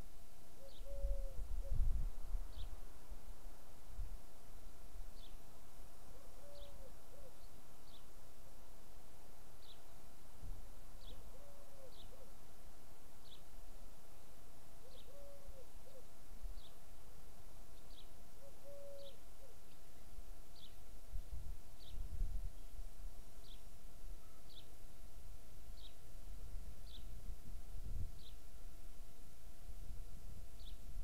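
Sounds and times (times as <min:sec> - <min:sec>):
dove cooing: 0:00.6 - 0:01.9, 0:06.2 - 0:07.4, 0:11.3 - 0:12.3, 0:14.8 - 0:16.1, 0:18.4 - 0:19.6.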